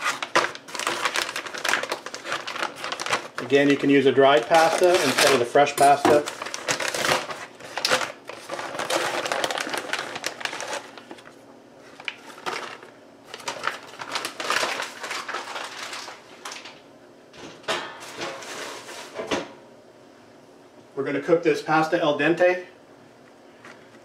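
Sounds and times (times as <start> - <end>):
plastic bag crinkling: 0.0 - 16.8.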